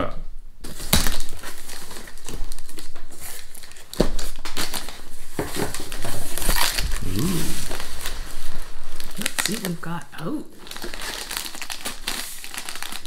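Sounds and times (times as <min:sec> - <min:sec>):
cardboard crinkling and scraping: 0:00.6 - 0:09.8
packing tape ripping: 0:00.7 - 0:09.8, 0:10.6 - 0:13.0.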